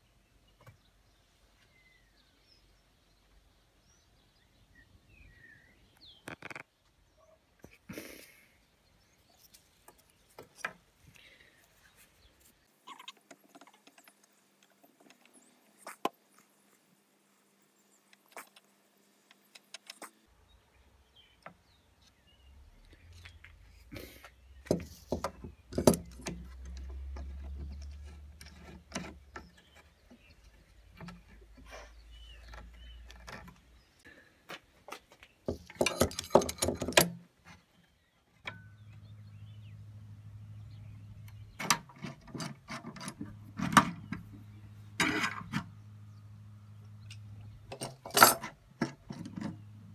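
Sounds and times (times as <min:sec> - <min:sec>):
metal clamps clicking and knocking: 0:24.6 - 0:29.9, 0:35.5 - 0:37.2, 0:47.1 - 0:49.7.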